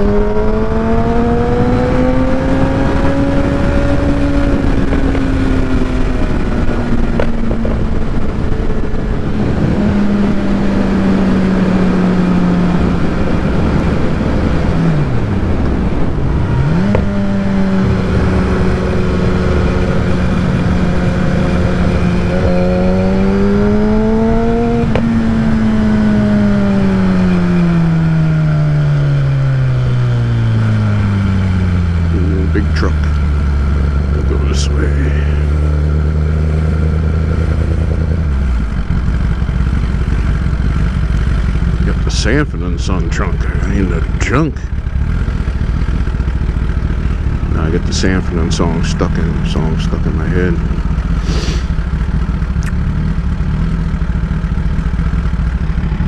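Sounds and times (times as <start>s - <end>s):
wind rushing over microphone: 0.0s - 32.5s
motorcycle engine at speed: 0.0s - 56.0s.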